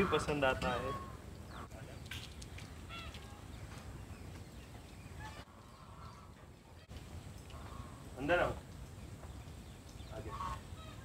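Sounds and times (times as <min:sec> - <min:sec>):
goose honking: 0:00.0 - 0:01.2, 0:07.5 - 0:08.0, 0:10.2 - 0:11.0.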